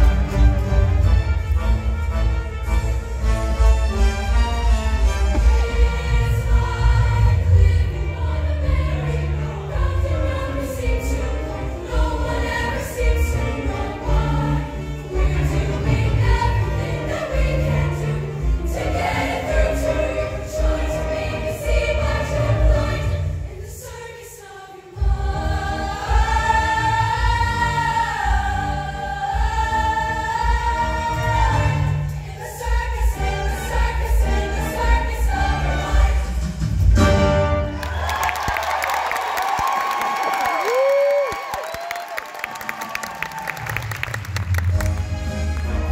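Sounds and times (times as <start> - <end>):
choir singing with band: 4.3 - 38.6.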